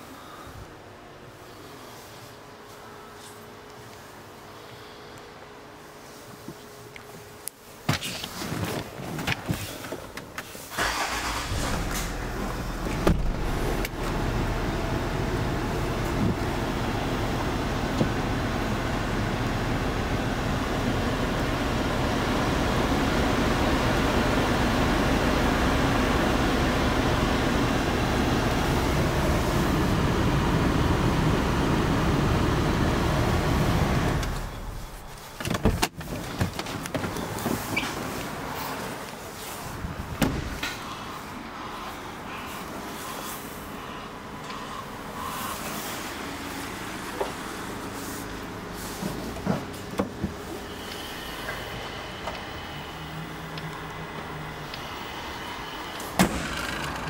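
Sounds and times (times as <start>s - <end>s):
clicks and rustles in car cabin: 6.4s - 10.6s, 35.0s - 38.3s, 49.0s - 50.4s
car engine starting: 10.7s - 38.2s
car engine idling: 10.8s - 35.4s, 50.1s - 57.0s.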